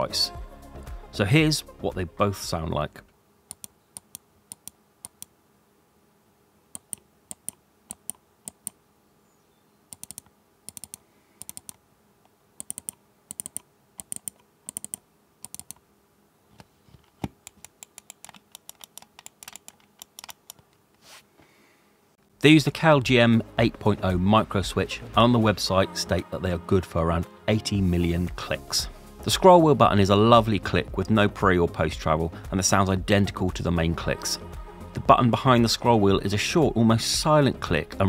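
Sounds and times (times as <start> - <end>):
mouse buttons clicking: 3.5 - 5.3, 6.8 - 8.8, 9.9 - 11.8, 12.6 - 15.8, 17.4 - 20.7.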